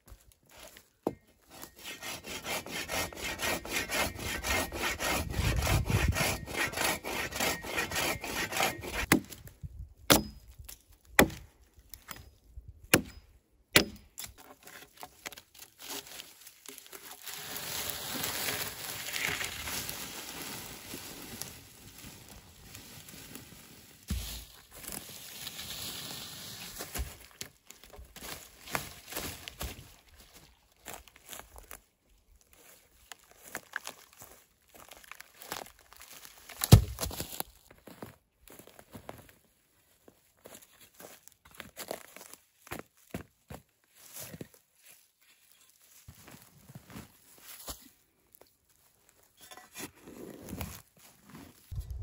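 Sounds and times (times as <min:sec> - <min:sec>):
hand saw cutting log: 0:01.5 - 0:09.2, 0:13.8 - 0:15.1
log dragged over forest floor: 0:14.5 - 0:39.3, 0:48.7 - 0:52.0.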